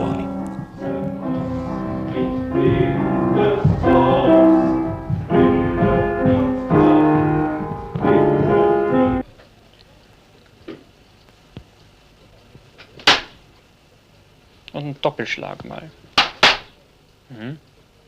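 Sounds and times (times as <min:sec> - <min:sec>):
slow piano chords: 0:00.0 - 0:09.3.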